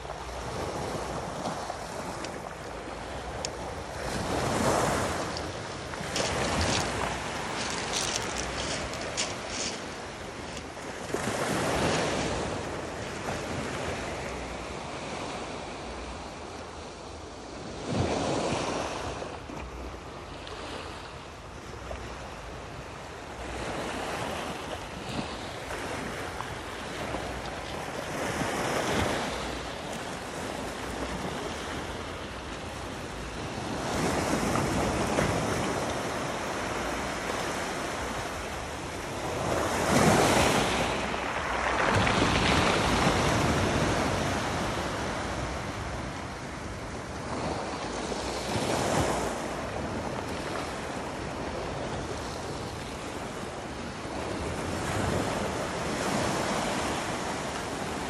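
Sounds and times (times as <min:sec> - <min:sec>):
waves washing on pebble beach: 0:00.0 - 0:14.6, 0:23.2 - 0:58.0.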